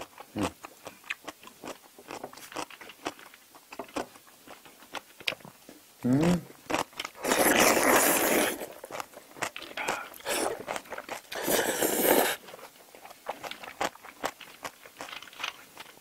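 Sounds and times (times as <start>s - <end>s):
open-mouthed chewing: 0.0s - 16.0s
person slurping noodles: 7.2s - 8.8s, 9.7s - 12.5s.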